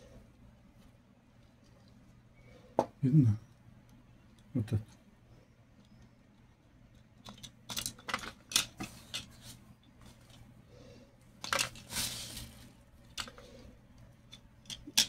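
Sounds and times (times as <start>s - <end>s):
rustling: 11.4s - 13.7s.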